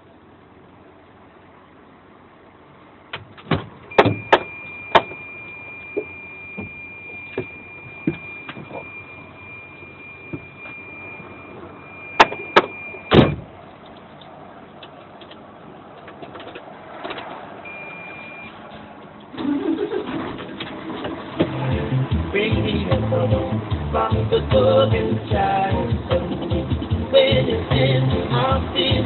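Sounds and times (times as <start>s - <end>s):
vehicle cab hum: 0.0s - 29.0s
thin high whine: 4.0s - 13.2s
music: 21.5s - 29.0s.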